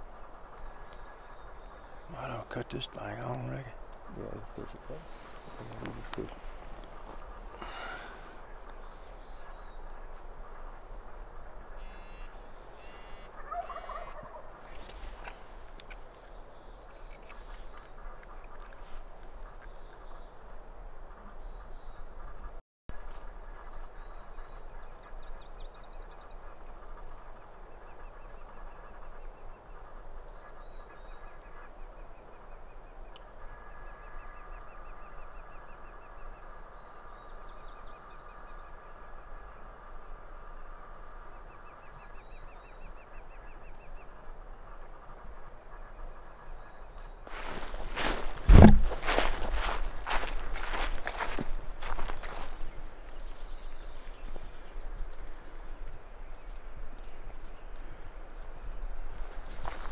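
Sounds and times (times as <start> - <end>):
turkey gobbling: 11.8 - 14.5.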